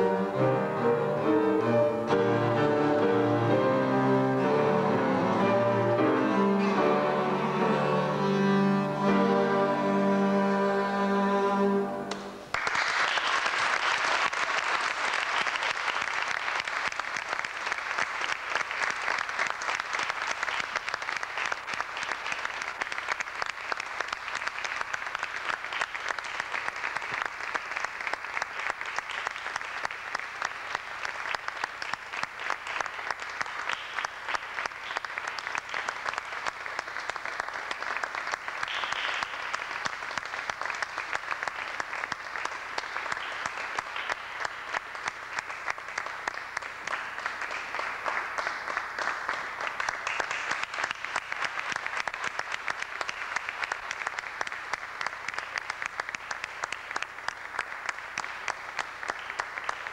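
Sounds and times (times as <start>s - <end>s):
audience applause: 12.1s - 59.9s.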